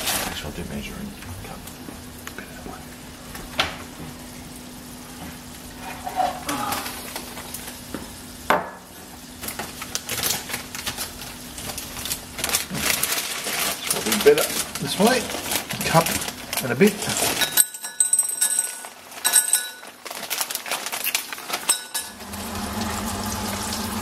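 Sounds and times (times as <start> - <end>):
dry pasta rattling into a mug: 11.8 - 22.1
kitchen handling clatter: 12.4 - 22.2.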